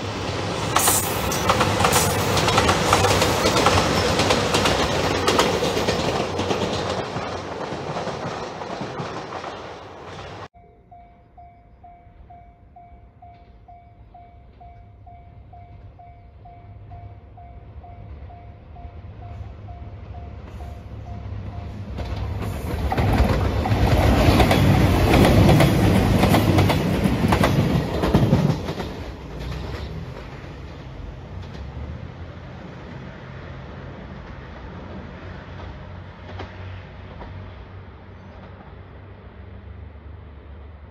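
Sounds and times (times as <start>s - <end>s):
distant diesel railcar rumble: 0.0s - 40.9s
level crossing warning bell: 10.6s - 21.9s.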